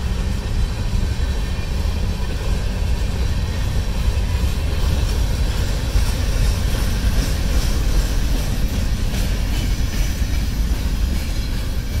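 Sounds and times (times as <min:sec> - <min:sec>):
freight train wheels rumbling: 0:00.0 - 0:12.0.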